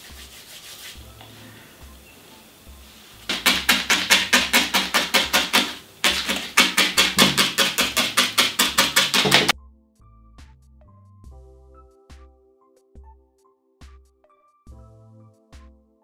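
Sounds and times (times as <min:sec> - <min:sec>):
felting needle stabbing foam: 0:03.3 - 0:09.5.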